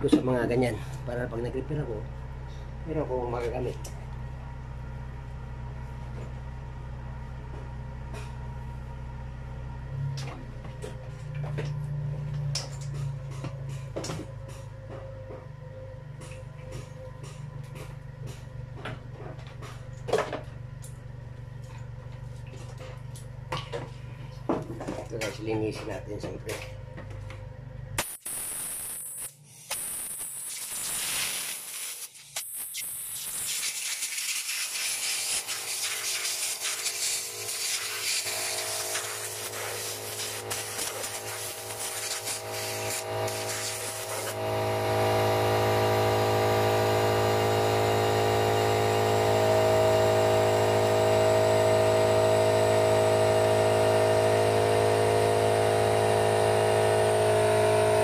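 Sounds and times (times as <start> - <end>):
hissing spray: 28.0 - 44.4
motor humming: 35.0 - 58.0.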